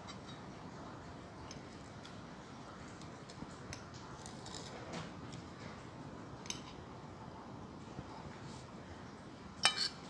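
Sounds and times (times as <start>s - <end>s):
cutlery scraping a ceramic plate: 0.0s - 0.5s, 9.6s - 10.0s.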